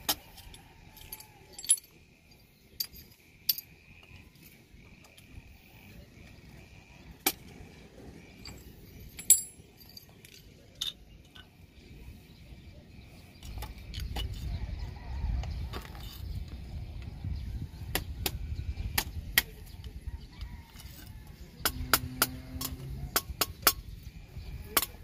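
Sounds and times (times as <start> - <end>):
metal pieces clinking on concrete: 0.0 - 4.5, 8.4 - 11.6.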